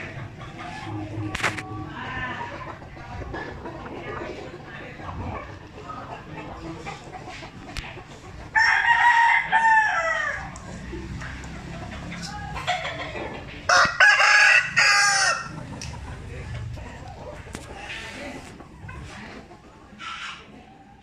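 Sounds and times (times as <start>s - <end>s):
rooster crowing: 8.6s - 10.5s, 13.7s - 15.6s.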